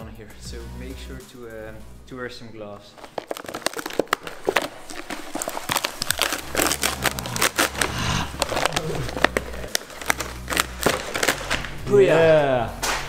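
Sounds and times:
fabric peeling with crackling snaps: 0:02.8 - 0:11.8.

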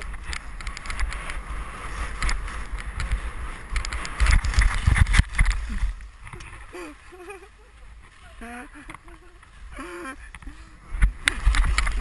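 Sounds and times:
wind buffeting microphone: 0:00.0 - 0:12.0
snow scraping under skis: 0:01.3 - 0:09.7.

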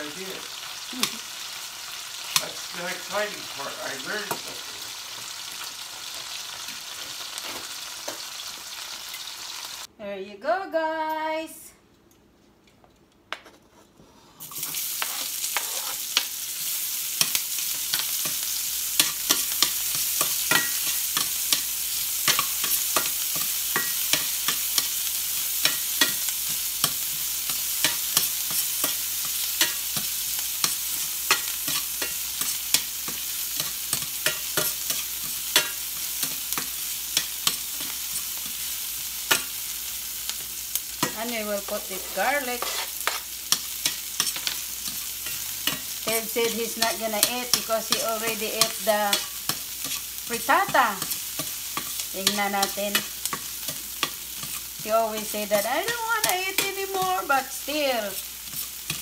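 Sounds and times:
food sizzling in hot oil: 0:00.0 - 0:09.9, 0:14.4 - 0:59.0
metal tongs scraping a pan: 0:14.4 - 0:59.0.

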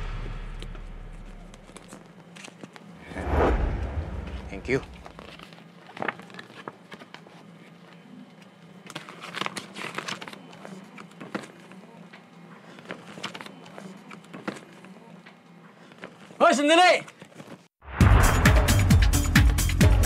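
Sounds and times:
paper rustling and crinkling: 0:05.0 - 0:08.0, 0:08.8 - 0:11.8, 0:12.7 - 0:14.8, 0:17.1 - 0:17.7.

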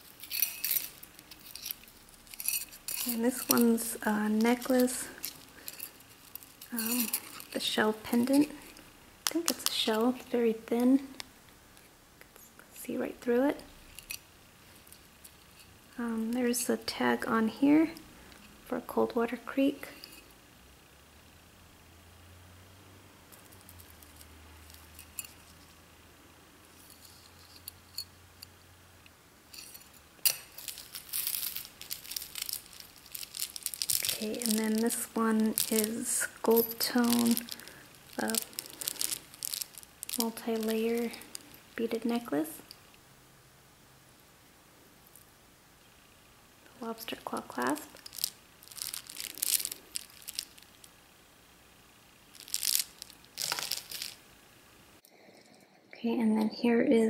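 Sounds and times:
beads clicking: 0:00.0 - 0:11.3, 0:23.3 - 0:25.8, 0:29.5 - 0:43.0, 0:46.6 - 0:51.1, 0:52.2 - 0:54.4
beads clinking and rustling: 0:00.0 - 0:11.3, 0:12.8 - 0:18.9, 0:19.5 - 0:20.4, 0:23.3 - 0:25.8, 0:26.7 - 0:28.2, 0:29.4 - 0:43.0, 0:46.6 - 0:54.4.

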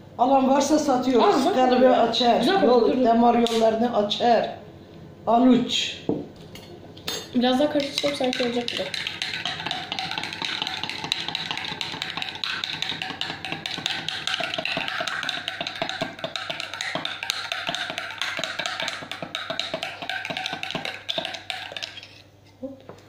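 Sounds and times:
spoon clinking in a glass: 0:07.1 - 0:22.2.

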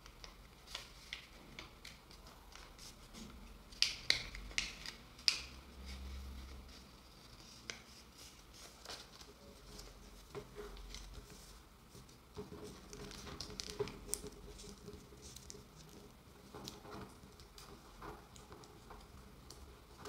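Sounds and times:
paper rustling: 0:00.0 - 0:18.8.

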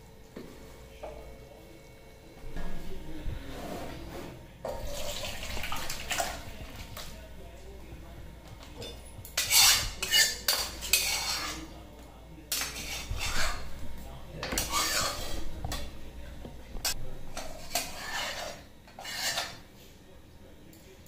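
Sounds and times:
metal spatula scraping steel pan: 0:09.4 - 0:11.7, 0:12.5 - 0:13.8, 0:14.4 - 0:15.9, 0:17.4 - 0:19.6.

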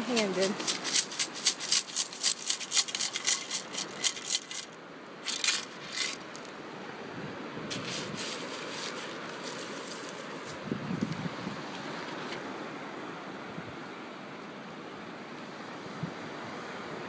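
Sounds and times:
sand rattling through sand scoop: 0:00.0 - 0:06.6, 0:07.7 - 0:10.7.

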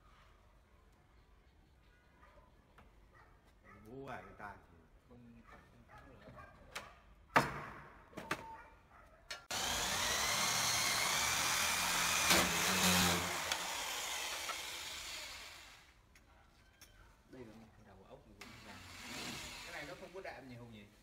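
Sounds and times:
electric drill boring into wood: 0:09.5 - 0:15.9, 0:18.4 - 0:20.2.

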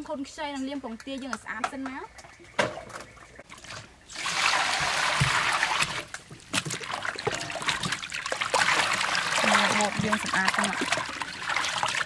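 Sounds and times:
water sloshing in metal bowl: 0:02.2 - 0:12.0.

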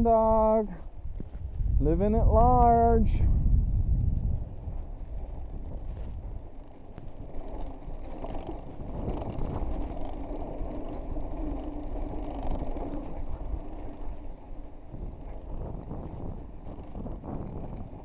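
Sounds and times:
wind on microphone: 0:00.0 - 0:18.0
tyres rumbling on rock: 0:04.4 - 0:18.0.

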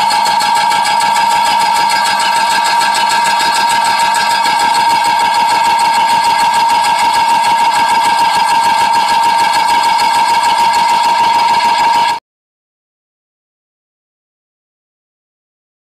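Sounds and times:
stamping machine whine and rattle: 0:00.0 - 0:12.2.

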